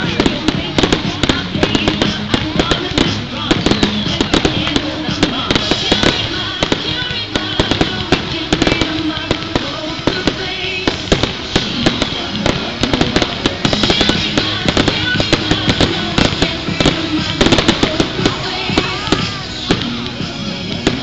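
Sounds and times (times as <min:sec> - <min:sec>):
fireworks cracking and popping: 0:00.0 - 0:21.0
music: 0:00.0 - 0:21.0.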